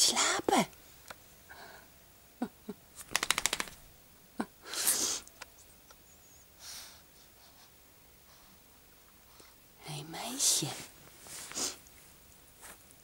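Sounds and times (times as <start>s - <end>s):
dog shaking head ears flapping: 3.0s - 3.9s.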